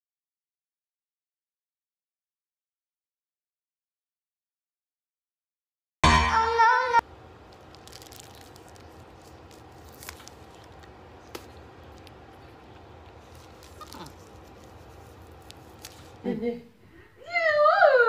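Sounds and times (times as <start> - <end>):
plastic bag crinkling: 7.0 - 16.2.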